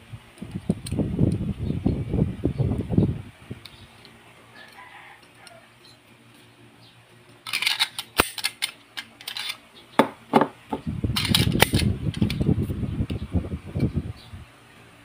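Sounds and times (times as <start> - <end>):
pistol metallic clicks: 7.5 - 9.6.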